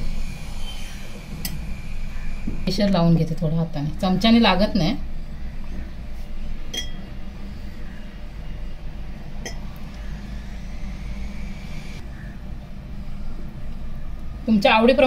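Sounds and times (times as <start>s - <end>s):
steady low hum: 0.0s - 15.0s
drinking glass clinking: 6.7s - 7.1s.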